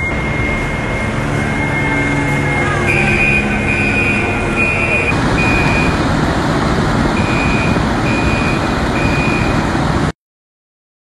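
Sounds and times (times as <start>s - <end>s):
high electronic beeps: 0.0s - 6.0s, 7.2s - 9.7s
fire engine motor rumbling: 0.0s - 10.2s.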